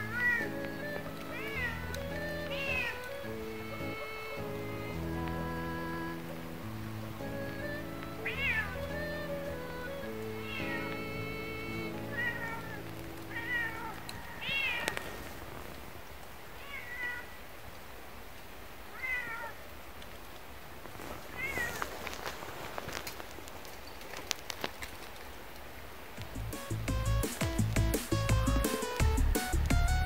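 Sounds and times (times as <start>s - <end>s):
cat meowing: 0.0s - 6.6s, 7.7s - 15.2s, 16.6s - 17.4s, 18.9s - 19.6s, 21.4s - 21.8s.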